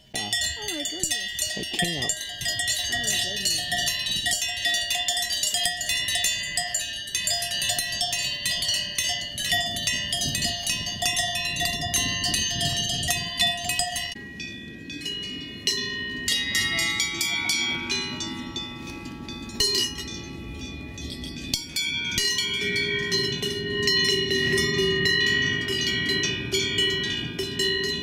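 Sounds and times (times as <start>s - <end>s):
cowbells clanking: 0.0s - 28.0s.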